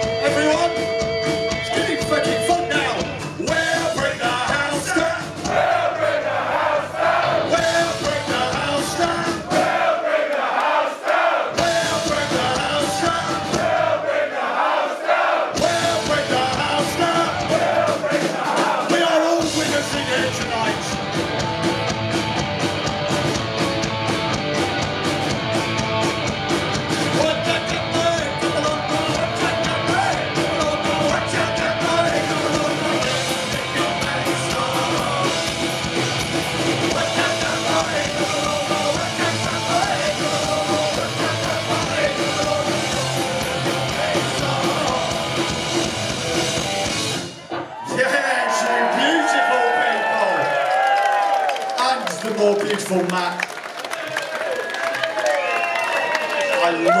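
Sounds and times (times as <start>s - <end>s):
distorted electric guitars: 0.0s - 5.6s, 7.1s - 9.6s, 11.6s - 13.9s, 15.6s - 18.1s, 19.4s - 47.8s
drums: 0.0s - 53.0s
shouted vocals: 1.8s - 20.5s, 47.7s - 52.1s, 54.0s - 57.0s.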